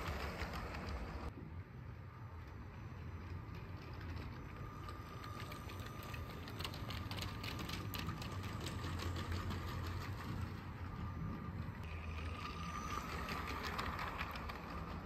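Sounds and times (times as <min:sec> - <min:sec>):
wheels clicking over track joints: 0:00.0 - 0:01.4, 0:02.3 - 0:15.0
small electric motor whining: 0:11.0 - 0:15.0.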